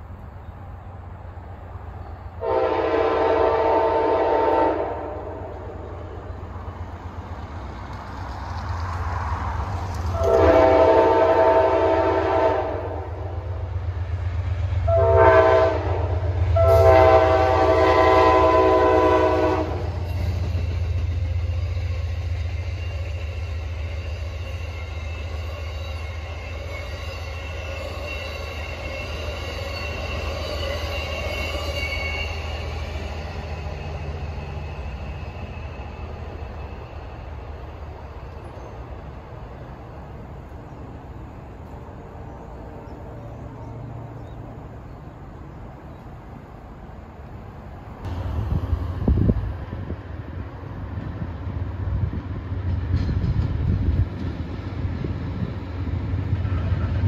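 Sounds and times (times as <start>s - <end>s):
train rumbling: 0.0s - 57.0s
locomotive air horn blasts: 2.4s - 5.9s, 10.1s - 13.4s, 14.8s - 21.0s
faint wheel squeal: 21.5s - 37.2s.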